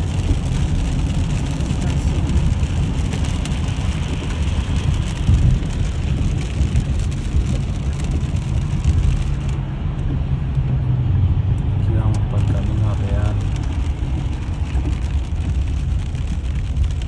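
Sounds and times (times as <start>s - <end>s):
rain and spray hissing: 0.0s - 9.6s, 12.3s - 17.0s
tyres rumbling on the road: 0.0s - 17.0s.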